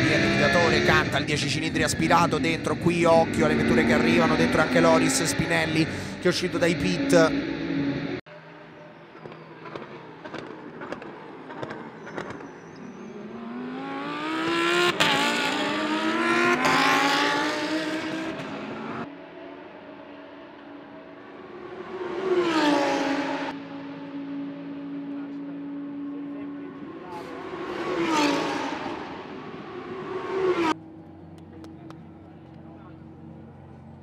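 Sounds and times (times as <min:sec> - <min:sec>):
race car accelerating: 0:00.0 - 0:34.0
steady engine drone: 0:00.0 - 0:34.0
car passing by: 0:21.4 - 0:25.4, 0:26.7 - 0:30.8.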